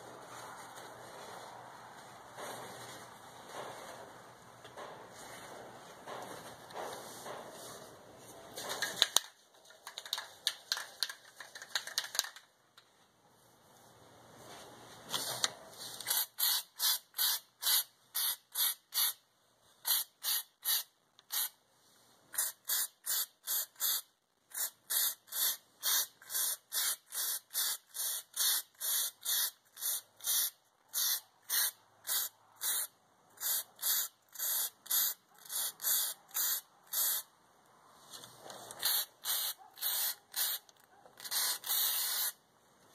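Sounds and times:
aerosol can hissing bursts: 16.1 - 19.2, 19.9 - 21.6, 22.3 - 37.3, 38.8 - 40.6, 41.2 - 42.4.

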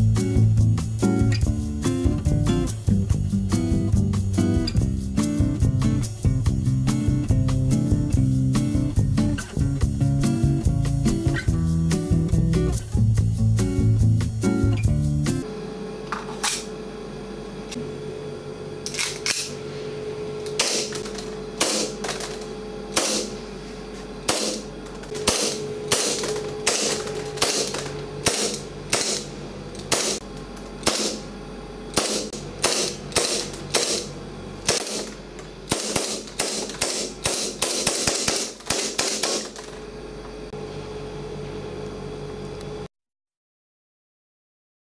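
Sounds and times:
airsoft pistol shots: 20.6 - 20.9, 21.6 - 22.0, 23.0 - 23.4, 24.3 - 29.3, 29.9 - 30.2, 30.8 - 31.2, 32.0 - 34.1, 34.7 - 35.1, 35.7 - 39.6.

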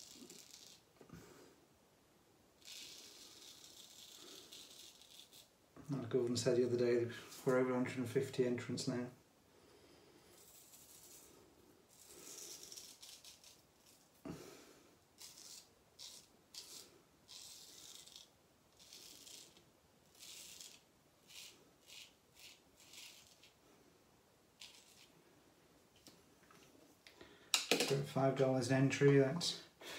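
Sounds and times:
razor scraping stubble: 0.0 - 0.9, 2.6 - 7.5, 10.3 - 14.3, 15.2 - 23.6, 24.6 - 25.2.

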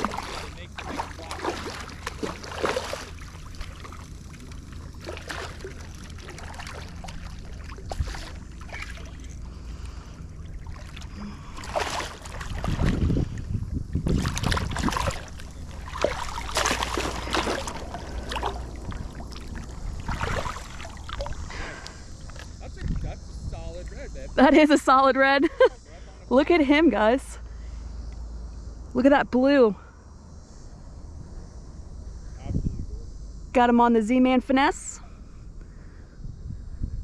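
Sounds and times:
fish thrashing and splashing in water: 0.0 - 9.5, 10.1 - 22.5
wind rumbling on microphone: 0.0 - 24.4, 31.1 - 37.0.

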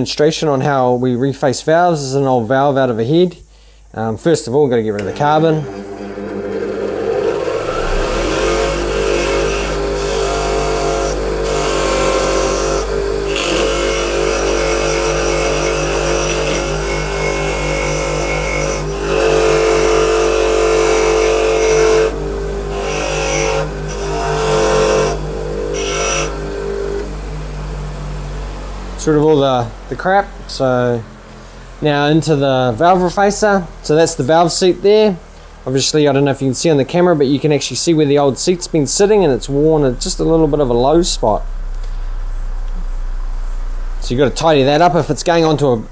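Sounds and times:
bench grinder motor hum: 5.0 - 29.3
metal grinding scrape: 5.2 - 14.8.

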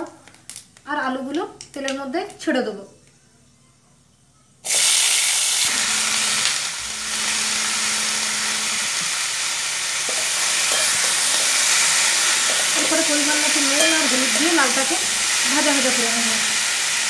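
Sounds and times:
vegetables sizzling in hot oil: 4.7 - 17.0.

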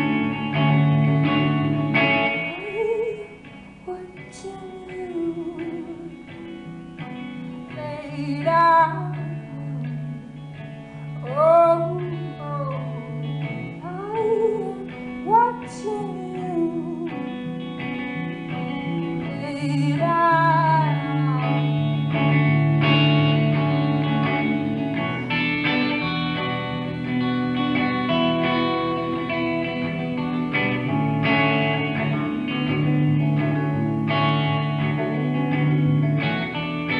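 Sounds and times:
electric guitar playing: 0.0 - 36.9
woman singing: 2.2 - 6.7, 7.7 - 10.6, 11.2 - 17.5, 19.1 - 22.2.

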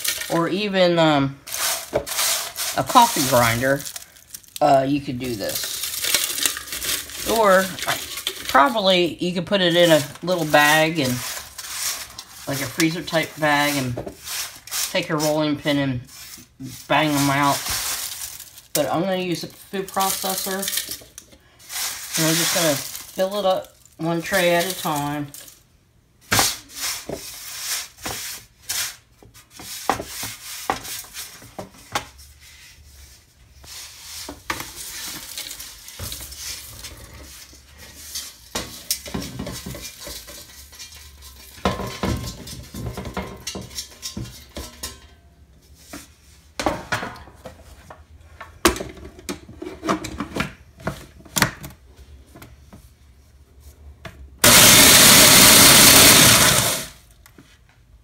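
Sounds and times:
eggshells clattering and scraping: 1.4 - 15.5, 16.1 - 25.7
food processor motor grinding: 54.4 - 57.0.

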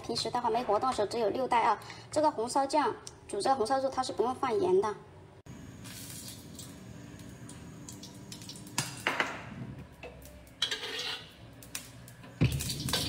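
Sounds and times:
metal spatula scraping a wok: 10.4 - 11.8, 12.6 - 13.0.

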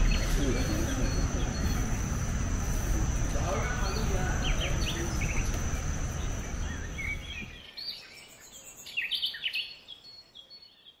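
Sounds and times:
steady high whine: 0.0 - 7.6
birds chirping: 0.0 - 11.0.

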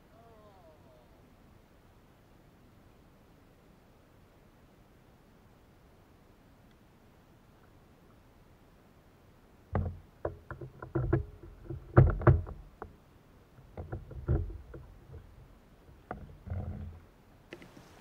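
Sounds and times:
rod and paddle knocking on kayak: 9.7 - 13.0, 13.6 - 17.8.

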